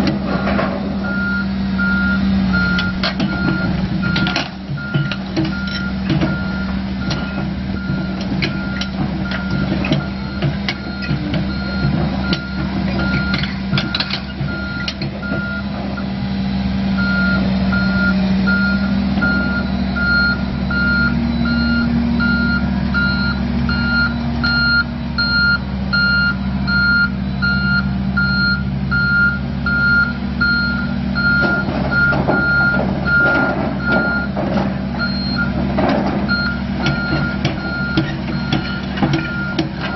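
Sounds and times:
diesel engine under load: 0.0s - 39.9s
knocks and clanks: 2.6s - 16.0s, 31.2s - 39.9s
travel alarm beeping: 17.0s - 34.4s, 35.0s - 35.5s, 36.3s - 39.9s.

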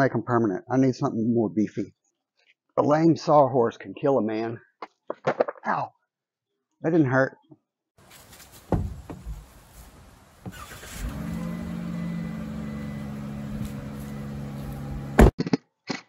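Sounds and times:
loud thump: 8.7s - 9.5s, 15.0s - 15.4s
van engine starting: 8.7s - 15.3s
engine idling: 10.0s - 15.3s.

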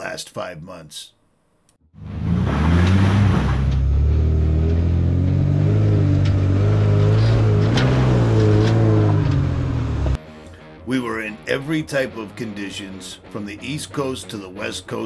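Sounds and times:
truck engine under load: 2.0s - 10.2s.

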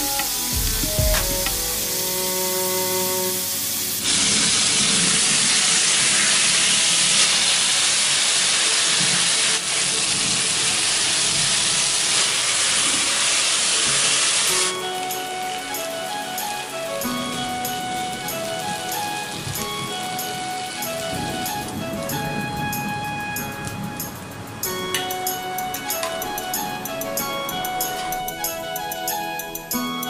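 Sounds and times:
food sizzling in hot oil: 0.0s - 21.6s.

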